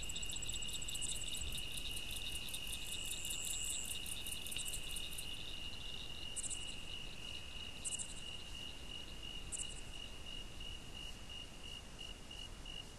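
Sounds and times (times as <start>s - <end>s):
insect trill: 0.0s - 11.4s.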